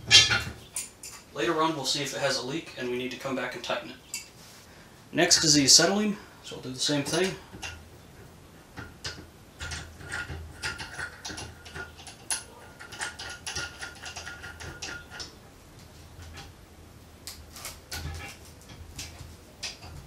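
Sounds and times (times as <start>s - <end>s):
small metallic clicks and rattles: 0.1s - 1.3s, 7.1s - 7.8s, 8.7s - 15.4s, 17.3s - 20.0s.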